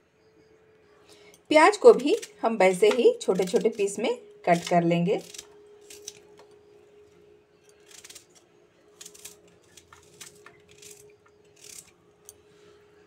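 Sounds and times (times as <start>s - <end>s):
knife and fingernails peeling garlic: 1.6s - 6.3s, 7.7s - 8.4s, 9.0s - 12.4s.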